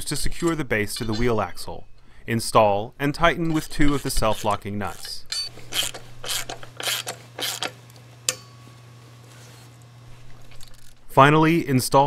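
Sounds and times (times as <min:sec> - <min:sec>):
socket ratchet clicking: 0:04.4 - 0:08.4.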